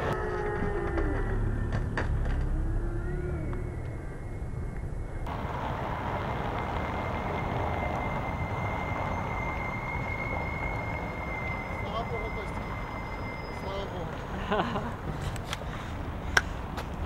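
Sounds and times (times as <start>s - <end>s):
passing vehicles rumble: 0.0s - 17.0s
thin high whine: 5.1s - 14.4s.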